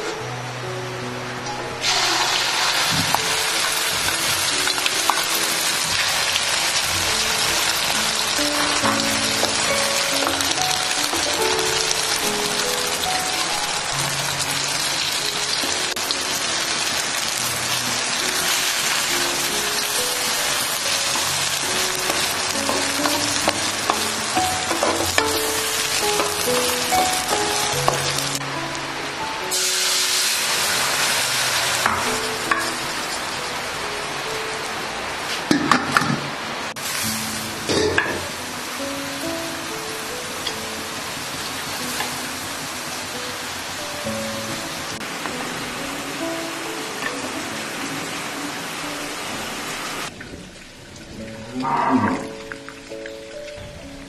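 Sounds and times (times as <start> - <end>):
egg sizzling in hot oil: 1.8 - 28.4, 29.4 - 33.6, 36.8 - 44.6.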